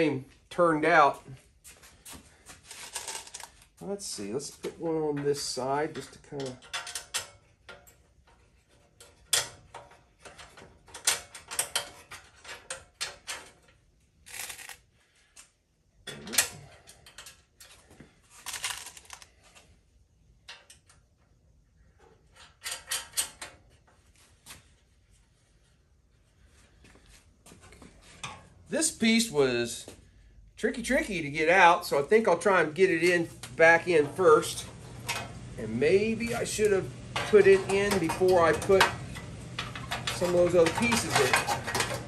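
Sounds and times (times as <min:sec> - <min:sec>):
bolts and nuts clinking: 0:04.4 - 0:14.8, 0:22.0 - 0:23.9, 0:31.8 - 0:42.0.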